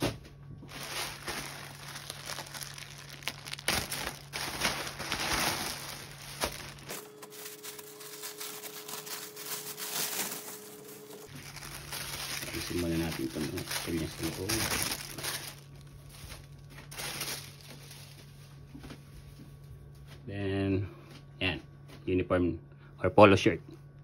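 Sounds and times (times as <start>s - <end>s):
plastic and paper crinkling: 0.6s - 19.0s.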